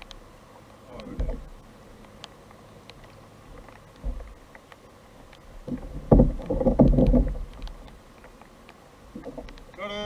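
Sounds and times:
knocking and rustling on kayak: 1.0 - 1.6, 3.5 - 4.4, 5.6 - 8.4.

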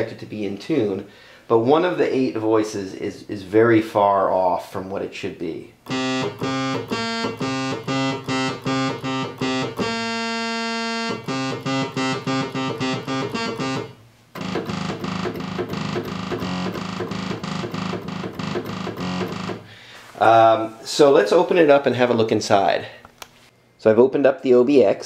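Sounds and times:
synthesizer repeated notes: 5.8 - 19.7.

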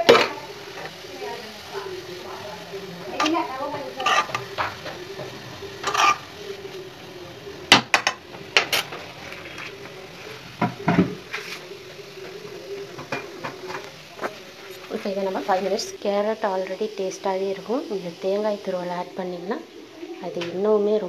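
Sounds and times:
spoon scraping metal pan: 3.2 - 5.0, 5.8 - 6.3.

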